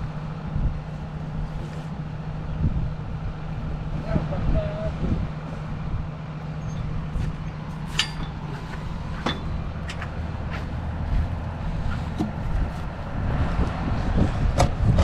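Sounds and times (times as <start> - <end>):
tractor engine droning: 0.0 - 15.0
metallic clinks and knocks: 7.5 - 8.6.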